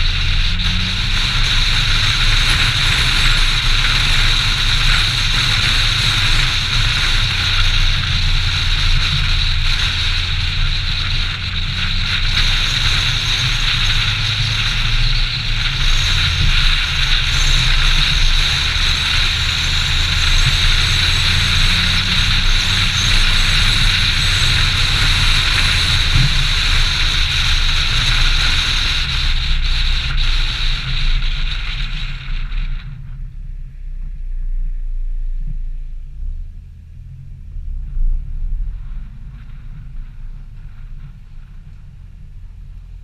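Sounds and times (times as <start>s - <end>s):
tyre hiss on wet road: 0.0s - 33.0s
car engine running: 0.0s - 43.0s.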